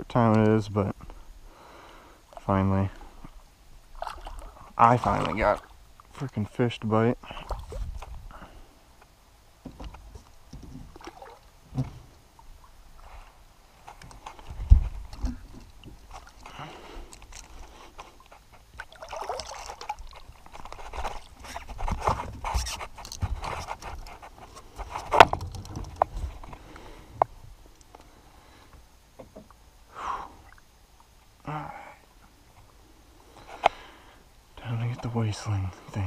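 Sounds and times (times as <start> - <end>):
knocks scrapes and rustling: 19.6 - 26.6.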